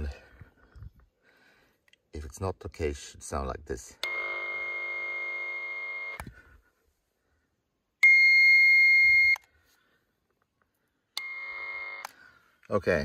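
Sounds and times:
high beep: 8.0s - 9.4s.

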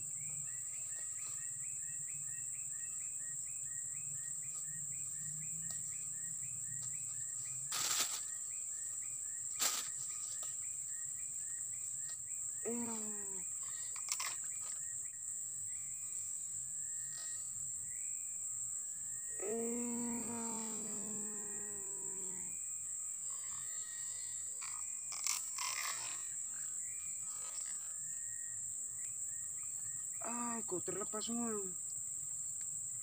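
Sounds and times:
high-pitched insect drone: 12.5s - 31.9s.

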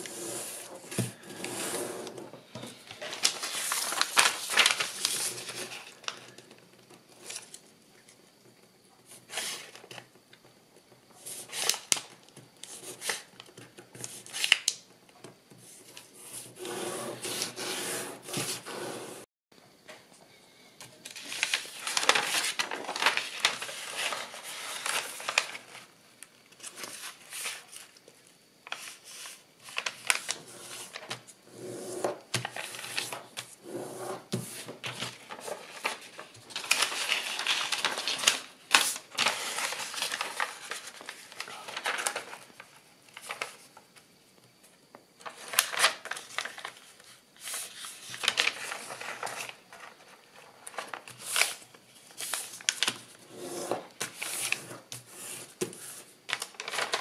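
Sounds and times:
paper folding and rustling: 0.4s - 8.1s, 11.4s - 14.9s, 21.0s - 25.9s, 26.5s - 33.6s, 34.2s - 44.0s, 45.2s - 57.0s.

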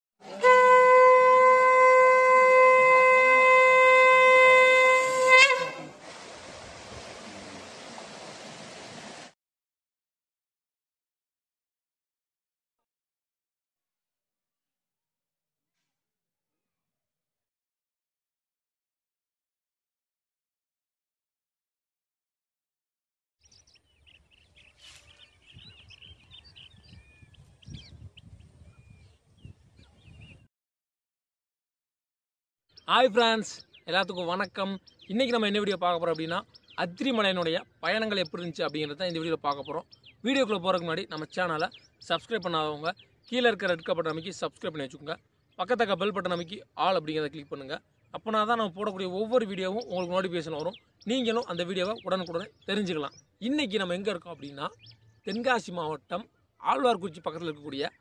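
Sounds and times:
conch shell blown: 0.2s - 6.1s
small birds chirping: 23.4s - 30.4s, 32.7s - 58.0s
wind rumble on microphone: 25.1s - 30.5s.

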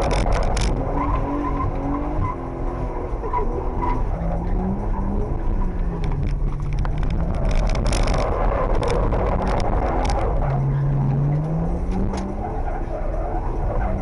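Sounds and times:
car engine revving: 0.0s - 14.0s
grit crackling: 3.8s - 10.9s.

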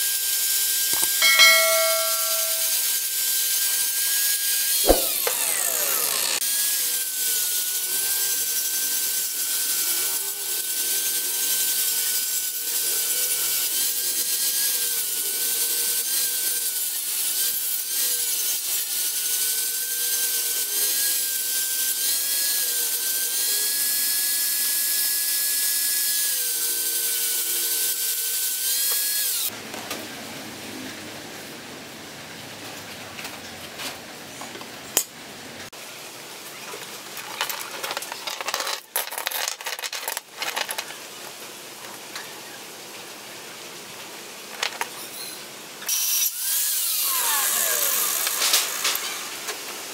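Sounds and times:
angle grinder grinding steel: 1.0s - 3.0s, 4.7s - 24.4s, 45.9s - 49.6s.

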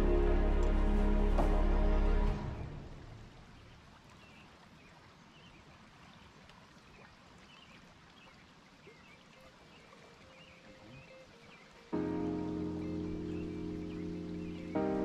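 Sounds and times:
background music: 0.0s - 3.4s, 10.4s - 15.0s
running water: 0.0s - 15.0s
faint bird chirps: 3.5s - 12.0s.

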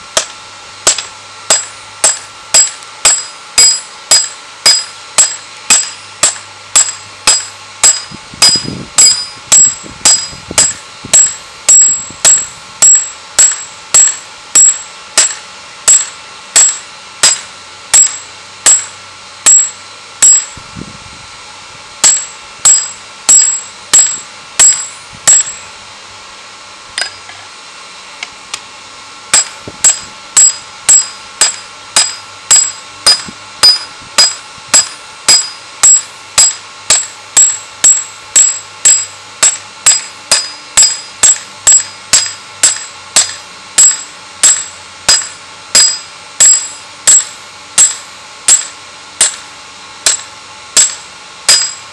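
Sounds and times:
hammer ringing on anvil: 0.2s - 20.6s, 22.0s - 25.7s, 27.0s - 27.4s, 29.3s - 49.4s, 50.0s - 51.9s.

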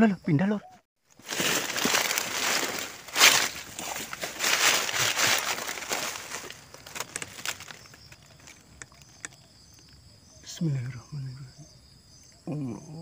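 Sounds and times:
high insect trill: 0.0s - 13.0s
faint clicks: 7.0s - 10.0s.

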